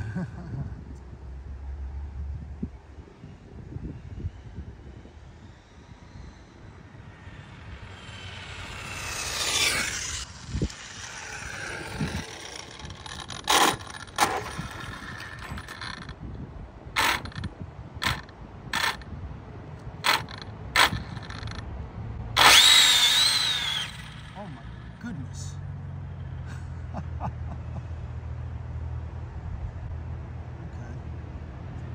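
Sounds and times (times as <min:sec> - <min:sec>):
electric rc car whine: 0:04.0 - 0:19.1, 0:20.0 - 0:21.7, 0:22.3 - 0:25.0.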